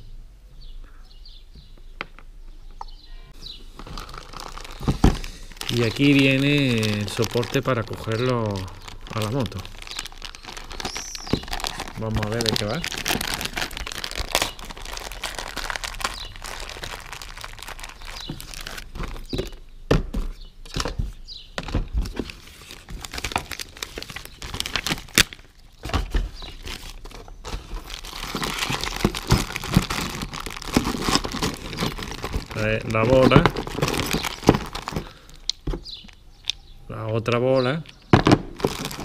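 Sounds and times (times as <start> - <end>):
plastic bag crinkling: 3.6 - 19.6, 22.1 - 25.8, 26.4 - 36.2, 38.2 - 39.0.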